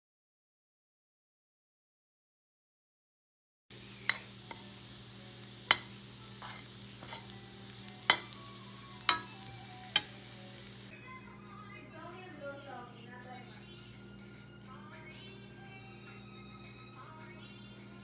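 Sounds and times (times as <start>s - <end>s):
garlic sizzling in a pan: 3.7s - 10.9s
utensil clinking against pan: 8.1s - 8.4s, 9.1s - 10.2s.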